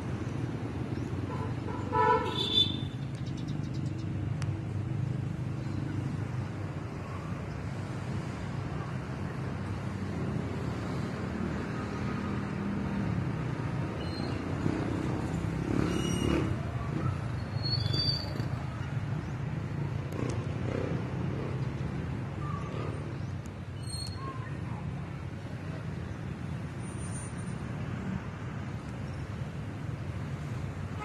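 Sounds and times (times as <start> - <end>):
outdoor background noise: 0.0 - 31.0.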